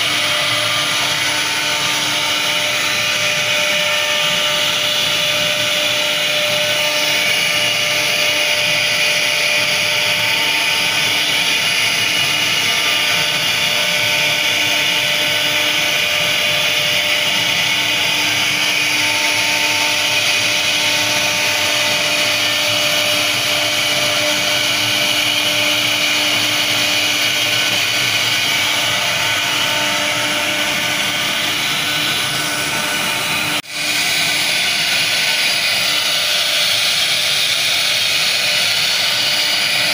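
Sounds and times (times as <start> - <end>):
router spindle whine: 0.0 - 39.9.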